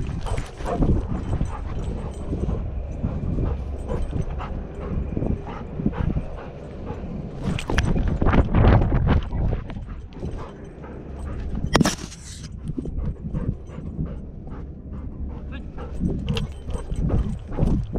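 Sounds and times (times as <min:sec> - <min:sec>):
dog breathing: 0:00.0 - 0:08.4, 0:09.3 - 0:17.9.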